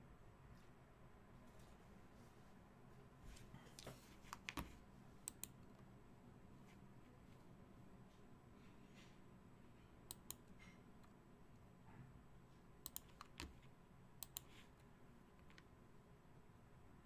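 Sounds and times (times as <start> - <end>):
sharp computer clicks: 5.3 - 5.6, 10.1 - 10.5, 12.8 - 13.5, 14.2 - 14.5.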